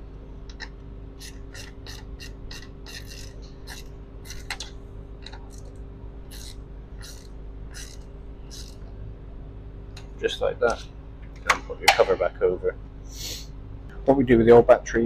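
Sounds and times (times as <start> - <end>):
ratchet clicking: 0.5 - 8.8.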